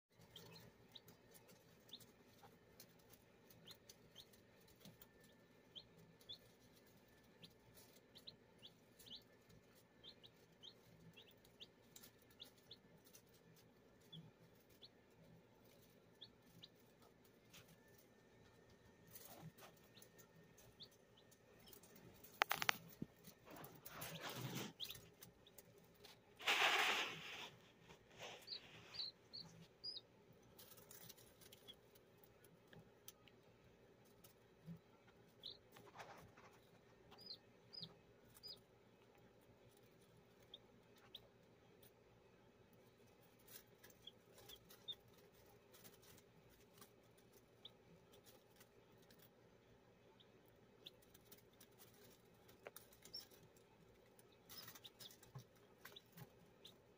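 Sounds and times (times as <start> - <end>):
chicks peeping: 0.1 - 56.9
rustling in dry leaves: 26.4 - 29.0.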